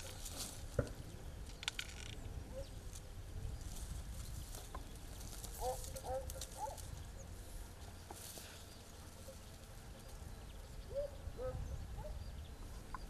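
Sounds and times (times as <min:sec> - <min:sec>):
wind rumble on microphone: 0:00.0 - 0:07.3, 0:10.4 - 0:13.0.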